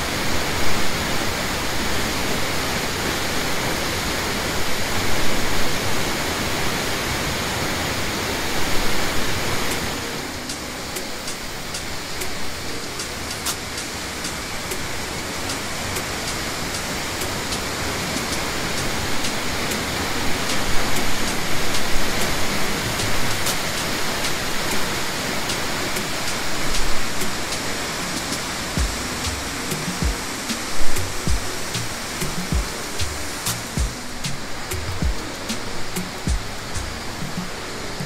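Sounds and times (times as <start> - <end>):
waterfall rushing: 0.0 - 38.0.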